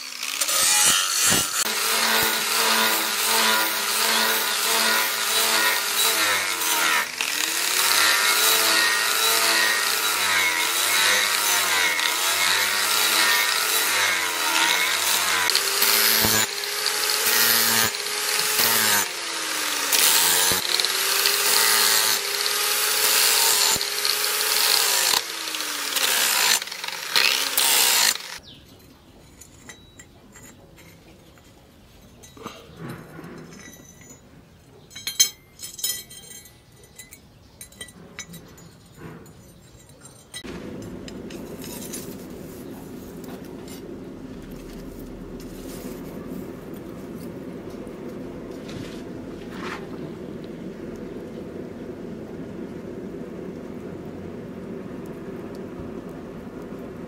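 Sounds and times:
angle grinder grinding steel: 0:00.0 - 0:28.4.

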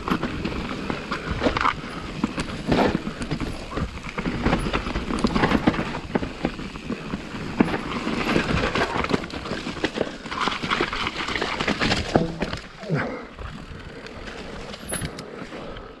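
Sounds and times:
mountain bike rattling: 0:00.0 - 0:16.0
tyre noise on trail: 0:00.0 - 0:16.0
knocks and clatter: 0:07.5 - 0:12.7.

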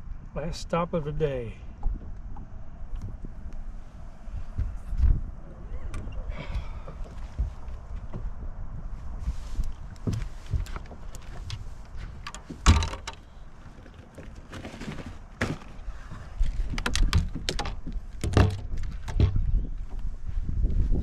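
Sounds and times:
low wind rumble: 0:00.0 - 0:21.0
gear handling clicks and knocks: 0:09.6 - 0:20.1
storage hatch opening and shutting: 0:12.2 - 0:13.3.

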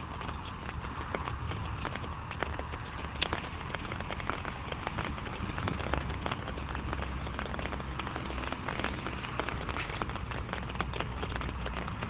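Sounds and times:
low steady rumble: 0:00.0 - 0:12.0
raindrops tapping: 0:00.0 - 0:12.0.

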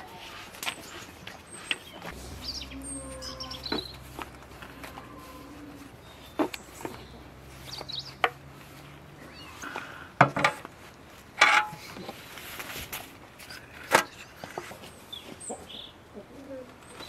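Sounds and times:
birds chirping faintly: 0:00.7 - 0:10.1.

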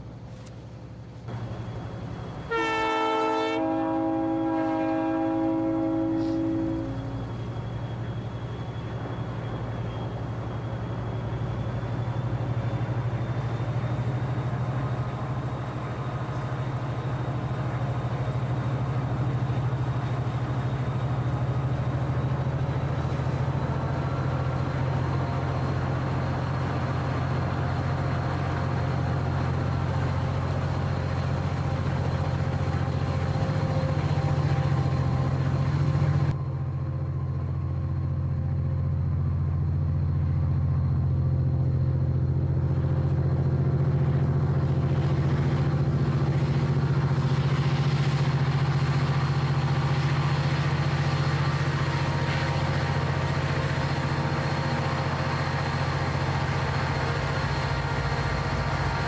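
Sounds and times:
locomotive running drone: 0:00.0 - 0:59.0.

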